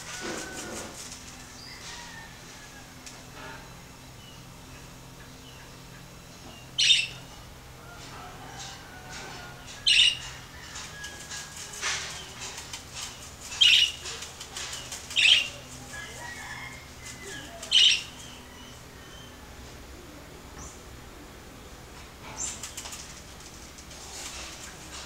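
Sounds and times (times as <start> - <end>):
bird scratching in seed: 0.0 - 1.5, 10.7 - 17.5, 22.5 - 25.0.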